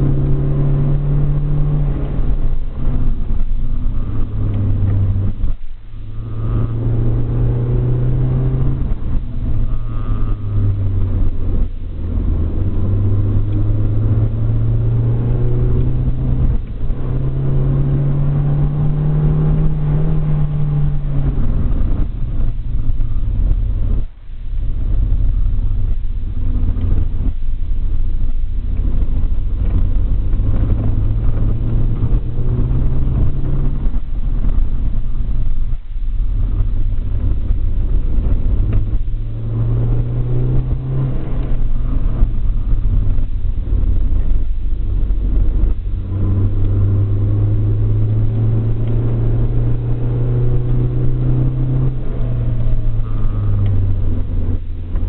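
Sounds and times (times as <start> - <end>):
car engine accelerating: 0.0 - 55.0.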